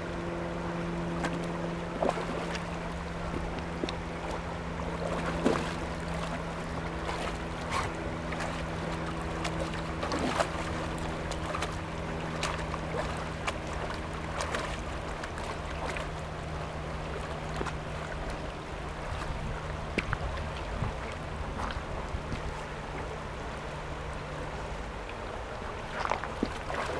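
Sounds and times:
low hum: 0.0s - 26.9s
river water rushing: 0.0s - 26.9s
dog splashing in water: 5.0s - 16.2s.

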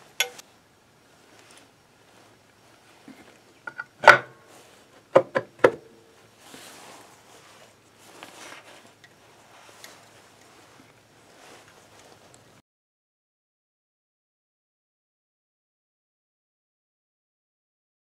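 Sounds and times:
rubbing and handling noise: 0.0s - 12.6s
metal cover clacking: 3.7s - 4.4s.

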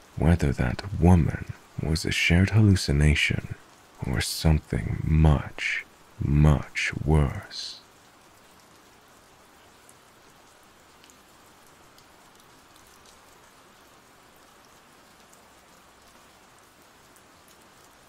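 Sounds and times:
rain hissing: 0.0s - 8.5s
raindrops ticking: 0.0s - 9.0s, 9.8s - 18.0s.

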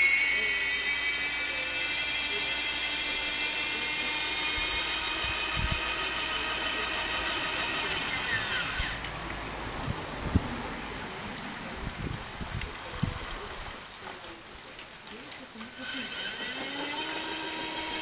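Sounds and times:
small electric motor whining: 0.0s - 9.1s, 15.7s - 18.0s.

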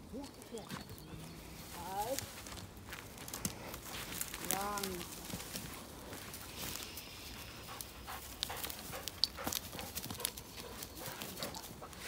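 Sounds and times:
footsteps crunching dry leaves: 0.0s - 12.0s
twigs snapping: 2.0s - 5.8s, 7.8s - 11.4s
dog panting: 7.3s - 12.0s.

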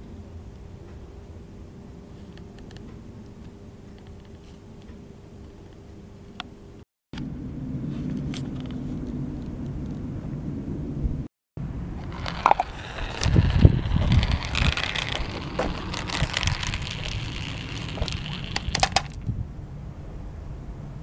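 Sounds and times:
marbles clicking: 12.0s - 19.2s
marbles rolling on plastic track: 12.0s - 19.2s.

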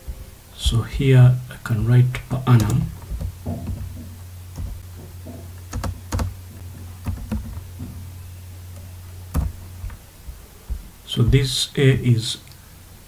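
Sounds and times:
steady low hum: 0.0s - 13.0s
computer keyboard keystrokes: 5.7s - 6.4s, 7.0s - 7.6s, 9.3s - 9.5s.

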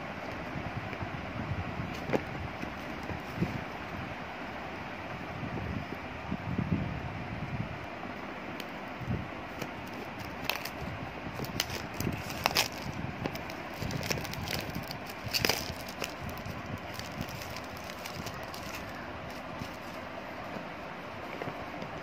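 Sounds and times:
steady background hiss: 0.0s - 22.0s
plastic shrink-wrap crinkling: 9.8s - 20.0s.

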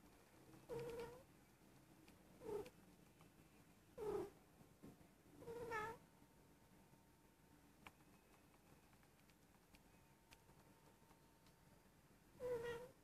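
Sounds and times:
cat meowing: 5.4s - 6.0s, 12.4s - 13.0s.

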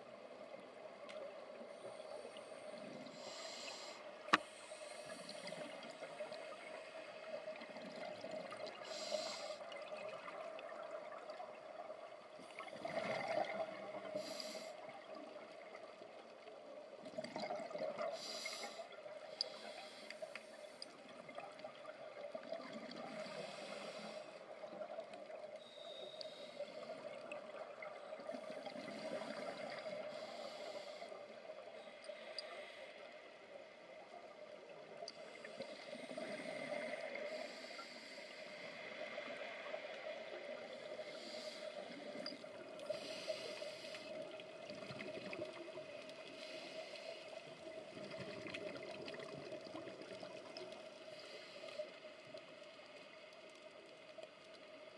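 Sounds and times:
exhaled bubbles underwater: 9.6s - 14.2s, 14.8s - 19.3s, 44.0s - 46.6s, 47.4s - 51.0s.

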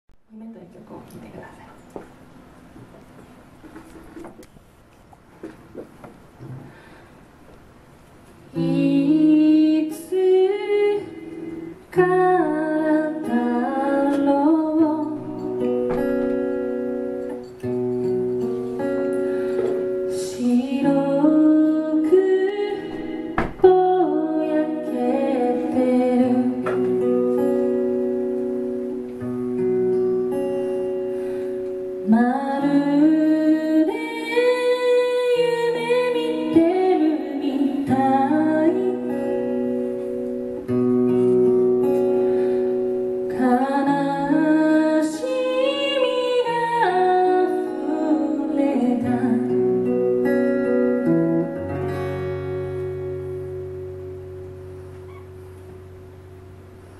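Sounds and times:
acoustic guitar: 0.9s - 56.9s
woman singing: 8.5s - 16.0s, 20.1s - 28.1s, 32.0s - 39.6s, 43.2s - 50.3s.

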